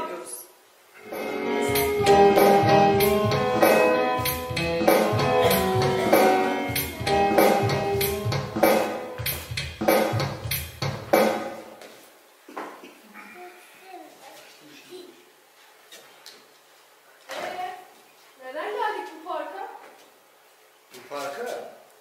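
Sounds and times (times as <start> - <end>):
instrumental music with drum beat: 1.1 - 11.8.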